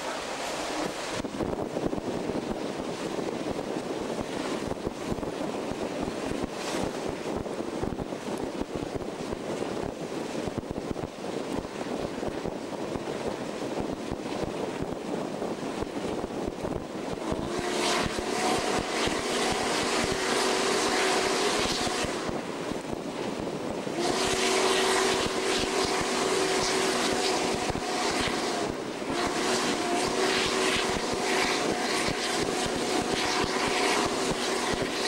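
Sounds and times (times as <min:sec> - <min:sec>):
steam locomotive rumble and rattle: 0:00.0 - 0:35.0
wind rush: 0:00.0 - 0:35.0
steam whistle chord: 0:17.4 - 0:22.2, 0:24.0 - 0:34.7
steam hiss: 0:24.0 - 0:34.7.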